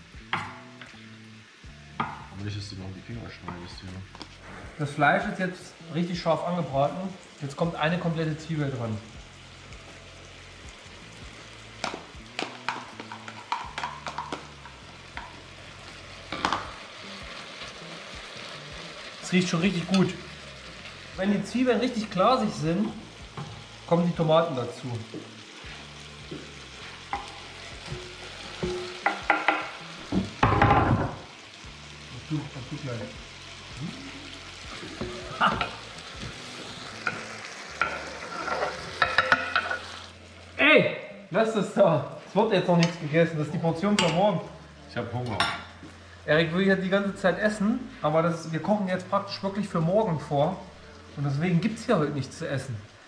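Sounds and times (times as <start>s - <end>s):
meat sizzling in a pot: 0.0s - 53.0s.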